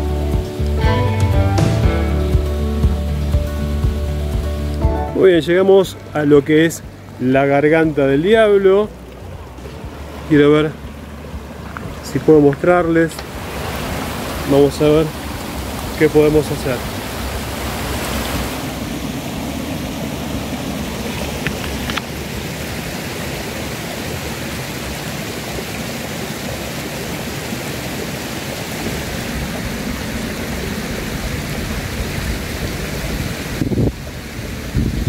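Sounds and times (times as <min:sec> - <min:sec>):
stream rushing over rocks: 0:00.0 - 0:35.0
wind rumble on microphone: 0:28.8 - 0:35.0.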